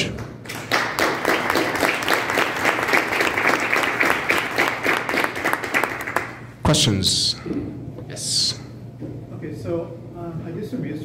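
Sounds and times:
audience applauding: 0.4 - 6.5.

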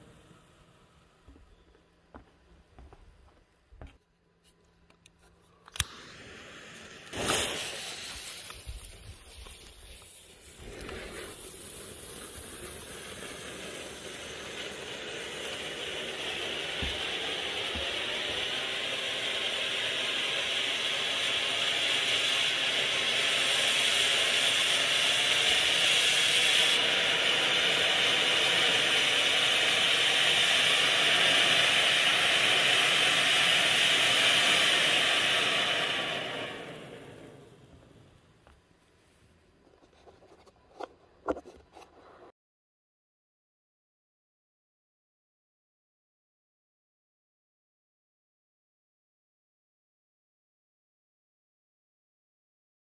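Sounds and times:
fountain firework hissing: 0.0 - 1.1, 5.8 - 38.3.

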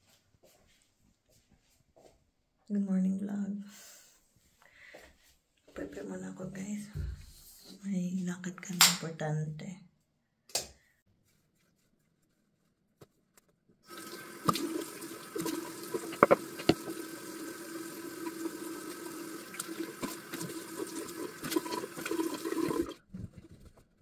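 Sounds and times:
tap running into sink: 13.9 - 22.9
water splashing on face: 13.9 - 23.0.

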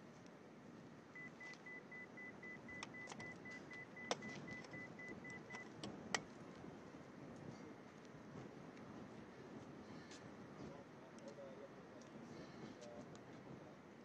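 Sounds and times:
faint background noise: 0.0 - 14.0
rapid high electronic beeping: 1.2 - 5.7
sharp clicks: 2.7 - 6.3.

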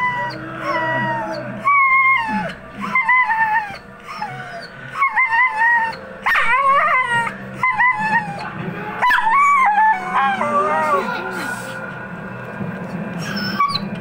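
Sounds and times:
dog whining and howling: 0.0 - 11.9, 13.2 - 14.0.

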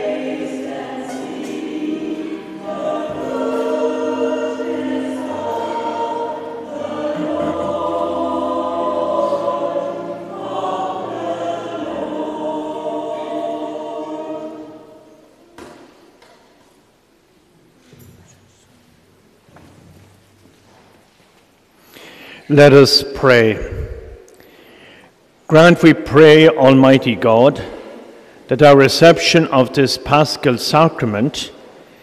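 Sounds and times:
choir singing a hymn: 0.0 - 16.0.

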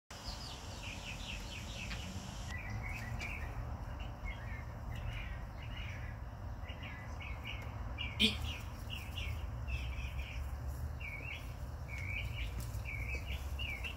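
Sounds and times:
small birds chirping: 0.1 - 13.9.

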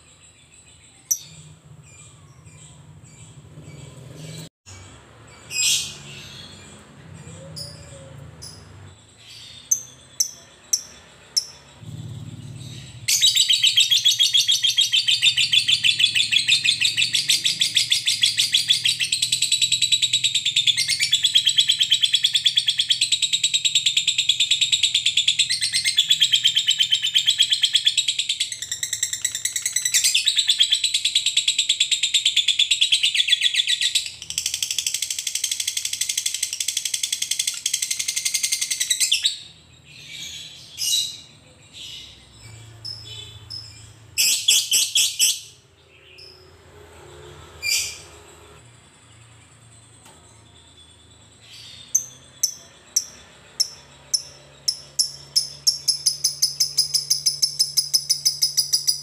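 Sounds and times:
bird chirps: 0.0 - 46.7, 47.6 - 59.0.

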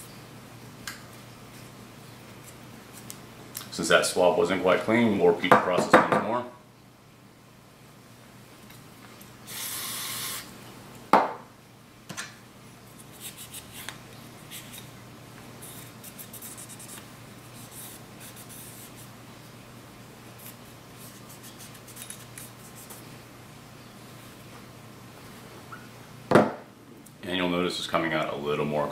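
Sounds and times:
aerosol spray hissing: 9.5 - 10.5.

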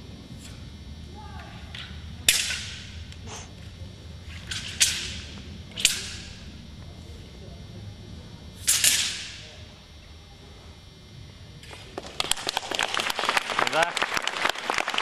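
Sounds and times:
sword blade cracking: 2.3 - 3.2, 4.4 - 6.8, 8.6 - 9.5.

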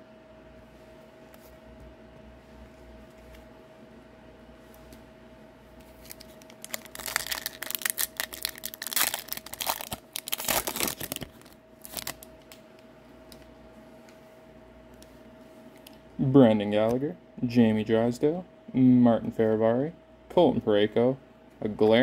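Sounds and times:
foil wrapper crinkling and tearing: 6.0 - 12.3.

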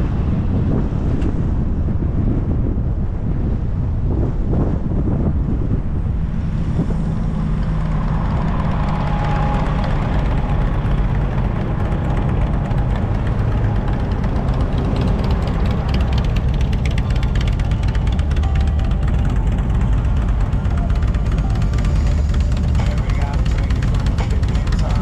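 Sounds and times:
tyre and road noise: 0.0 - 25.0
car engine running: 5.0 - 25.0.

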